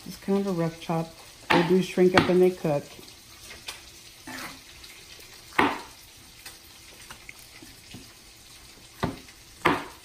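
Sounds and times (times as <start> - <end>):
knife chopping on cutting board: 1.5 - 2.4, 5.6 - 5.9, 9.0 - 10.0.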